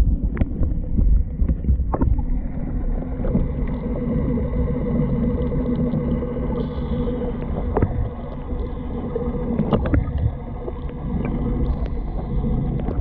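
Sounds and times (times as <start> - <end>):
underwater rumble of moving water: 0.0 - 13.0.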